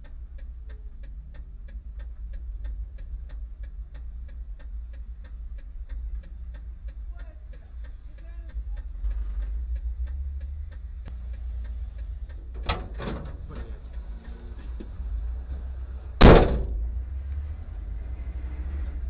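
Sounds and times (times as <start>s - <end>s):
fast light ticking: 0.0s - 15.0s
car engine rumble: 0.0s - 19.0s
knocks: 16.2s - 16.8s
loud slam: 16.2s - 16.8s.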